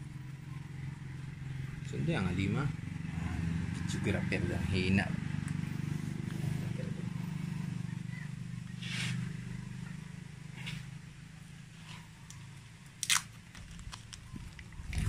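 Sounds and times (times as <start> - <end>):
vehicle engine hum: 0.0 - 15.0
packing tape rustling and crackling: 13.0 - 15.0.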